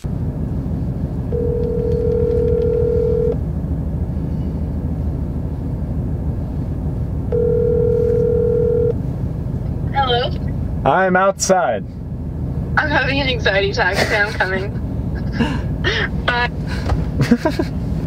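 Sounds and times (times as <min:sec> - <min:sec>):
car cabin rumble: 0:00.0 - 0:11.0, 0:12.0 - 0:18.0
phone ringback tone: 0:01.3 - 0:03.4, 0:07.3 - 0:09.0.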